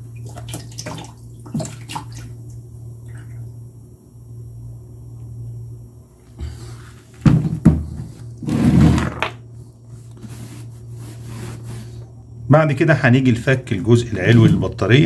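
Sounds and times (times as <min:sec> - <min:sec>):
steady low hum: 0:00.0 - 0:15.0
plastic case knocking on workbench: 0:07.2 - 0:08.1.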